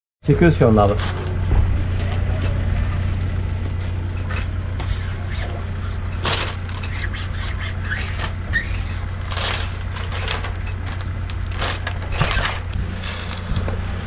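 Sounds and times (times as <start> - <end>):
steady low hum: 0.2 - 14.0
transfer tape peeling off vinyl: 4.3 - 13.7.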